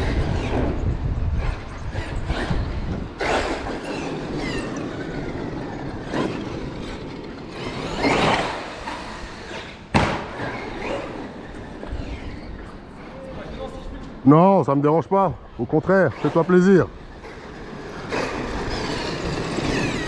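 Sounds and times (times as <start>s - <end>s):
rc truck motor whine: 0.0s - 12.8s, 16.9s - 20.0s
tyres on pavement: 0.0s - 14.7s, 16.0s - 20.0s.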